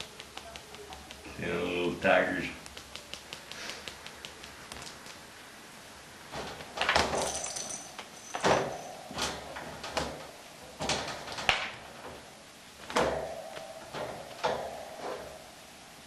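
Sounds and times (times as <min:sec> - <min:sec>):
wire cage rattling and clanking: 0:06.3 - 0:12.3, 0:12.9 - 0:15.4.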